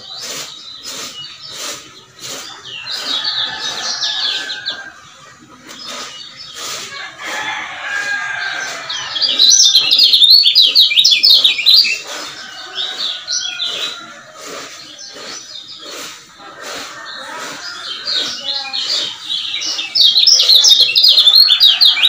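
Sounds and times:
bird chirping song: 0:00.0 - 0:22.0.

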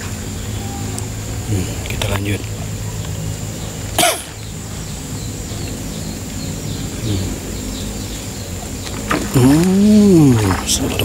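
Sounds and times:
steady low hum: 0:00.0 - 0:11.0
faint high chirps: 0:02.8 - 0:10.3.

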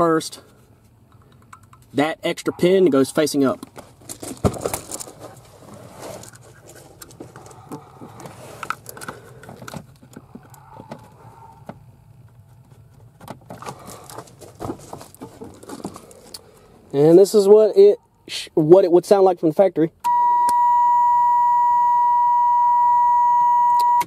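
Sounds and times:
clicks and scrapes among wiring: 0:03.6 - 0:11.2.

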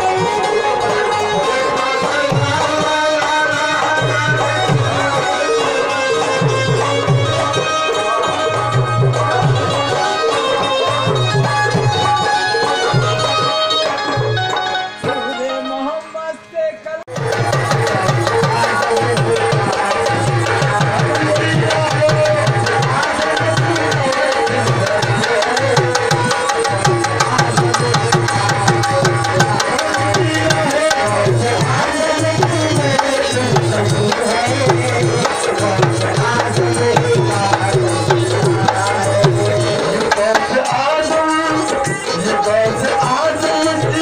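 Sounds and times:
hand drum beat: 0:17.1 - 0:44.0.

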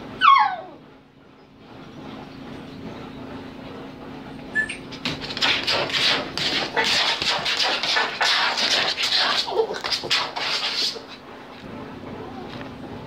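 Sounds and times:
puppy whimpering: 0:00.2 - 0:00.8, 0:04.5 - 0:04.9, 0:12.1 - 0:12.7
scuffling and rubbing: 0:05.0 - 0:11.2.

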